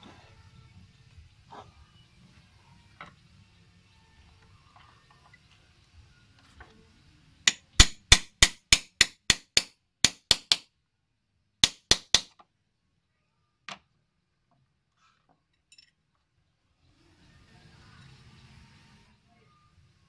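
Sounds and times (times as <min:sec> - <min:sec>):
hammer tapping on wood: 0:07.5 - 0:10.6, 0:11.6 - 0:12.4.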